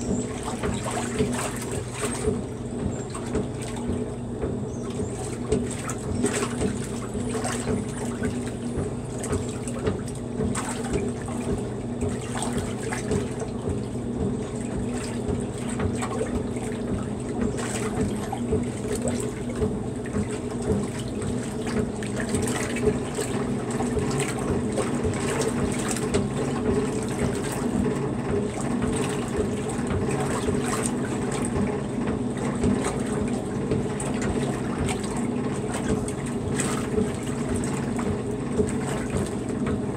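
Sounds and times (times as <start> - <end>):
washing machine hum: 0.0 - 39.9
water sloshing in washer: 0.0 - 39.9.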